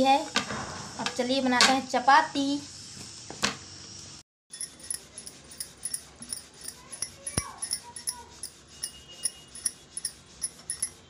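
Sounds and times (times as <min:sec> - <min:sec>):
rolling pin rolling dough: 0:04.5 - 0:11.0.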